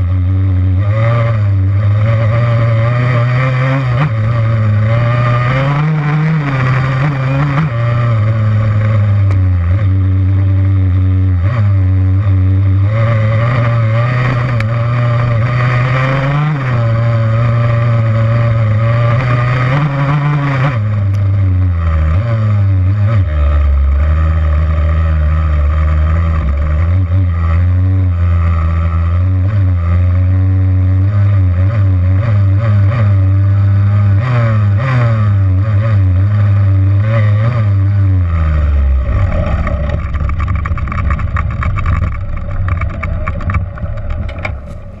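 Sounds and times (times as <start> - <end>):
dirt bike engine revving: 0.0 - 45.0
rough low rumble: 36.4 - 45.0.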